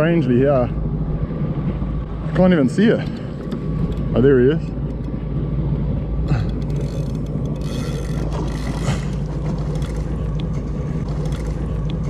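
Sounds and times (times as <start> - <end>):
water noise: 0.0 - 12.0
jet ski engine idling: 6.1 - 12.0.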